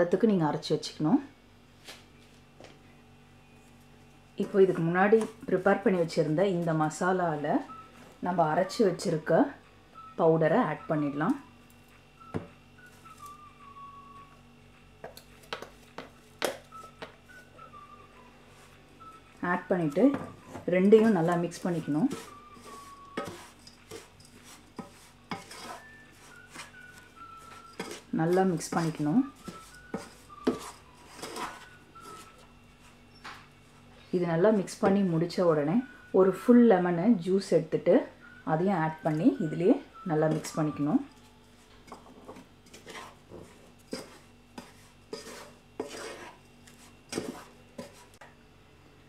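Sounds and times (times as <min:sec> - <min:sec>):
wooden spatula scraping a saucepan: 0:20.9 - 0:32.4, 0:42.2 - 0:48.2.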